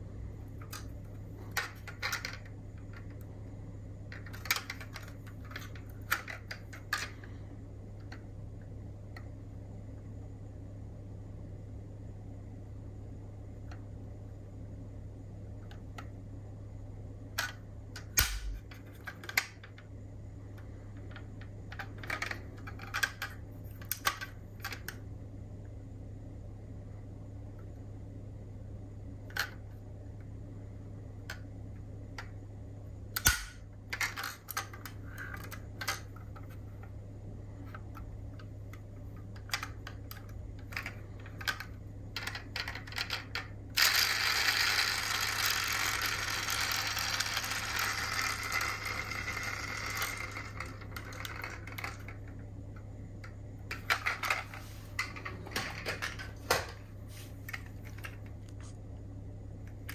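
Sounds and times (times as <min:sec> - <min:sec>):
low steady hum: 0:00.0 - 0:59.9
metal model cars clicking: 0:39.4 - 0:52.2.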